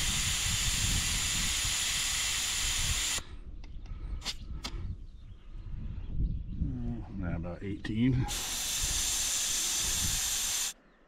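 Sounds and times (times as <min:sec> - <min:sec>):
air hissing from tire valve: 0:00.0 - 0:03.2, 0:08.3 - 0:10.8.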